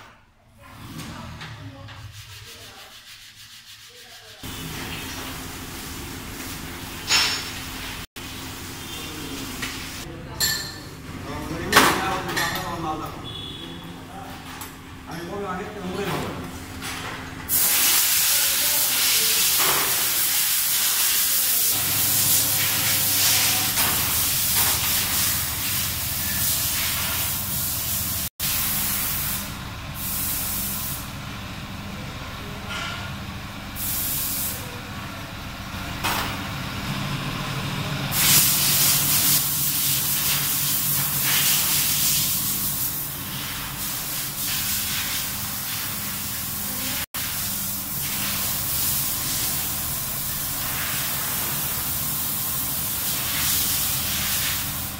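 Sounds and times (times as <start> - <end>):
loud steady hiss: 17.5 - 31.2, 38.1 - 54.9.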